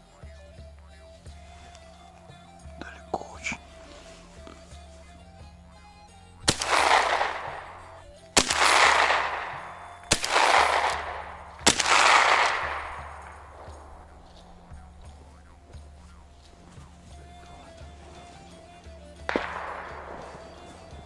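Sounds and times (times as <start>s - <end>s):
gunshots with rolling echo: 6.2s - 21.0s.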